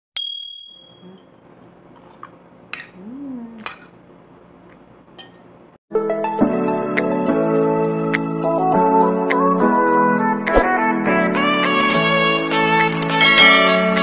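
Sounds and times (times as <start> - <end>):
cutlery clinking on a plate: 5.1 - 5.6
music: 5.9 - 14.0.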